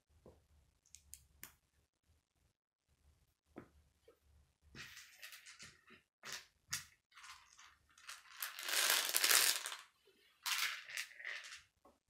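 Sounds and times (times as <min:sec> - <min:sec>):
plastic pieces clicking: 0:08.3 - 0:09.8.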